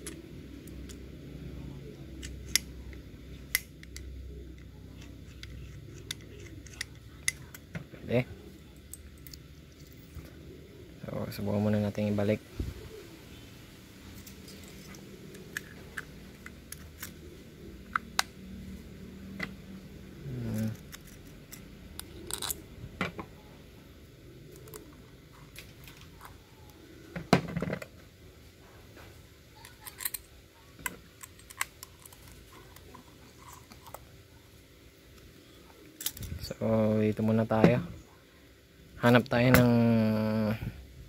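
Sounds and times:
small metal parts clicking: 2.2s - 7.7s, 20.4s - 22.6s, 29.6s - 34.0s, 36.0s - 36.3s.

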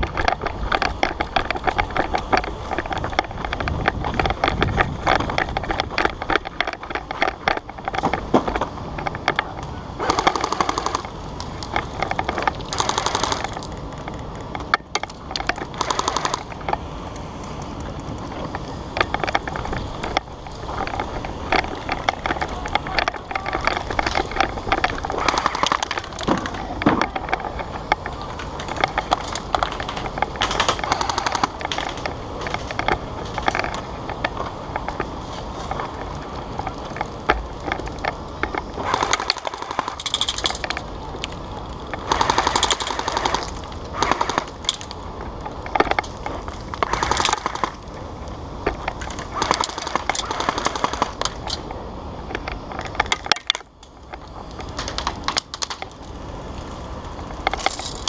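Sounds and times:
airsoft guns firing bursts: 10.0s - 11.2s, 12.7s - 13.6s, 15.7s - 16.6s, 25.0s - 26.5s, 30.5s - 32.0s, 38.8s - 40.6s, 42.0s - 44.8s, 46.8s - 47.8s, 49.2s - 51.4s.

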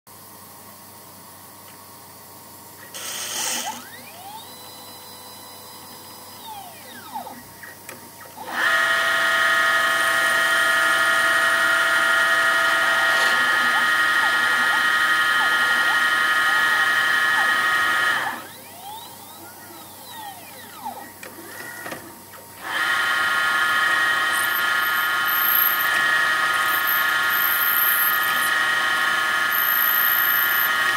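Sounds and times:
spindle motor whining: 2.8s - 30.9s
stepper motors whining in sweeps: 2.8s - 30.9s.

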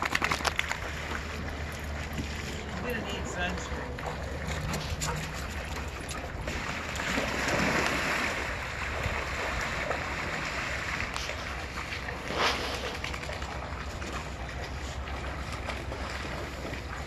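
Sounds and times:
splashing through shallow water: 0.0s - 17.0s
sharp splash: 6.4s - 14.2s.

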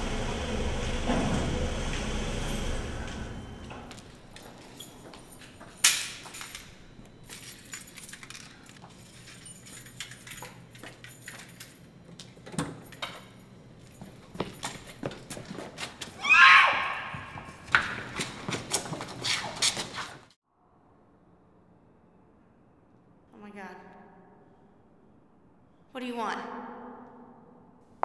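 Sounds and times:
footsteps on concrete: 13.9s - 16.2s, 16.9s - 20.2s.

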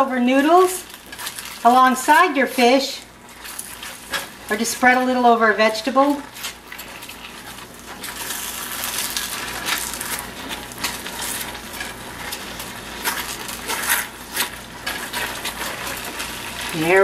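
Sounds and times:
wooden spoon scraping a skillet: 0.2s - 17.0s.

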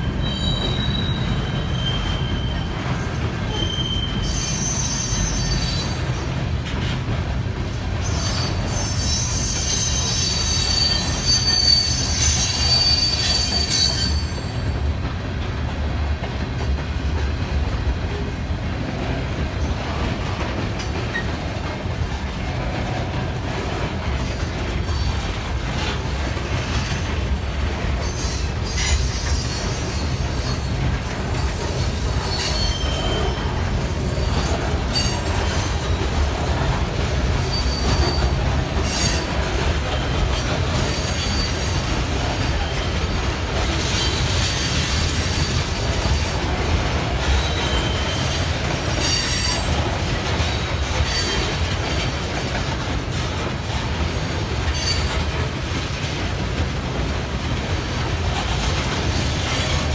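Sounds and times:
train cars rumbling on rails: 0.0s - 59.9s
high-pitched wheel squeal: 0.2s - 2.7s, 3.5s - 6.0s, 8.1s - 14.6s, 32.2s - 33.5s.

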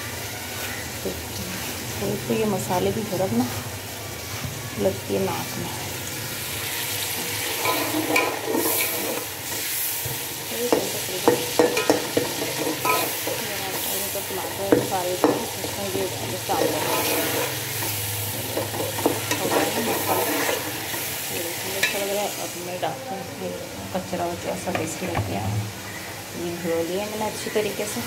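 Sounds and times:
food sizzling in a pot: 0.0s - 28.0s
spoon scraping a metal pot: 7.4s - 9.7s, 10.7s - 13.9s, 16.5s - 21.1s.

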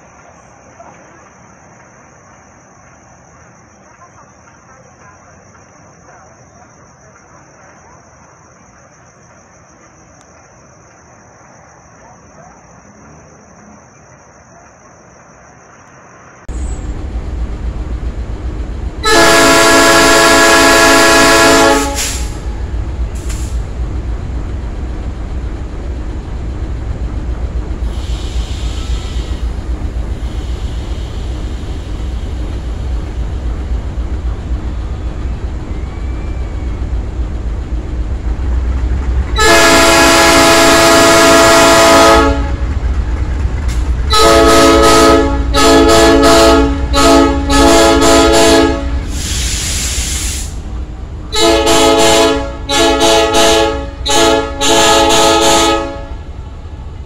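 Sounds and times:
passing train rumble: 0.0s - 57.0s
locomotive air horn blasts: 19.0s - 22.5s, 39.4s - 42.6s, 44.1s - 49.3s, 51.3s - 56.2s
air hiss: 21.8s - 22.5s, 23.1s - 23.8s, 27.8s - 33.7s, 49.0s - 50.8s.

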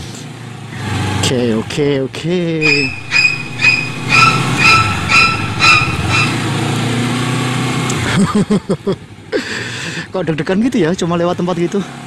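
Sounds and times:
short high electronic beeps: 2.6s - 6.3s
motorcycle engine running: 2.6s - 7.3s.

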